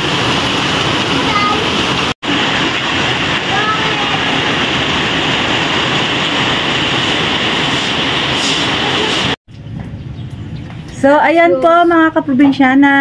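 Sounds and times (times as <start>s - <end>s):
heavy rain pouring: 0.0s - 9.4s.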